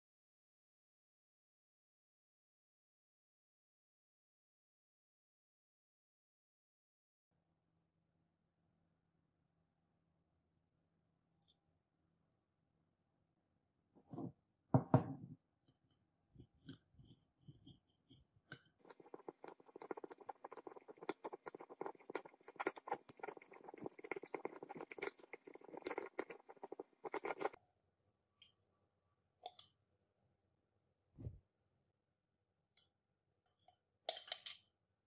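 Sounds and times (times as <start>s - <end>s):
spoon scraping crystals in glass: 18.6s - 27.6s.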